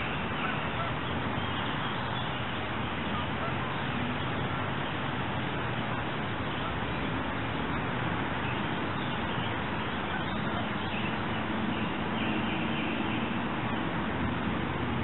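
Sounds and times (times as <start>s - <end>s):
creek water rushing: 0.0s - 15.0s.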